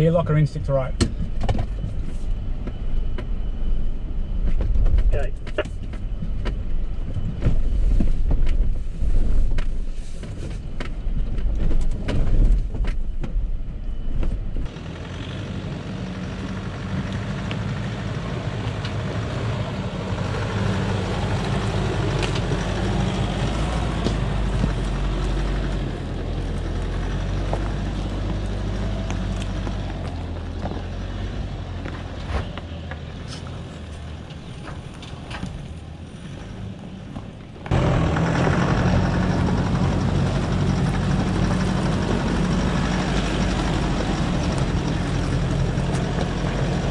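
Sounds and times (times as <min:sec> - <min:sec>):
engines humming low outside: 0:00.0 - 0:46.9
low engine rumble: 0:00.0 - 0:46.9
knocks and rattles from vehicle body: 0:01.0 - 0:03.3, 0:04.4 - 0:14.7.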